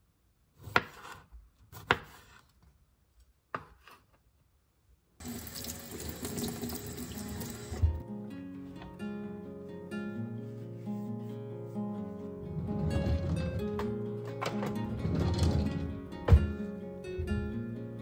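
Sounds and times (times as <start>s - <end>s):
tap water running into sink: 5.2s - 8.0s
plucked-string music: 7.1s - 18.0s.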